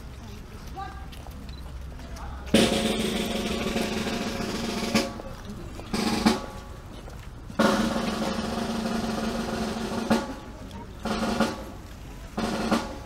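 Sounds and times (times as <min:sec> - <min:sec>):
snare drum rolls: 0:02.5 - 0:05.2, 0:05.9 - 0:06.6, 0:07.6 - 0:11.8, 0:12.4 - 0:13.0.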